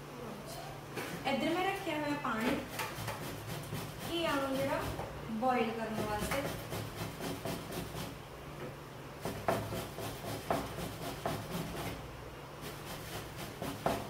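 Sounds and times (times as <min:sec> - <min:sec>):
grating on metal grater: 0:02.7 - 0:05.0, 0:05.9 - 0:08.1, 0:09.3 - 0:12.0, 0:12.6 - 0:14.0.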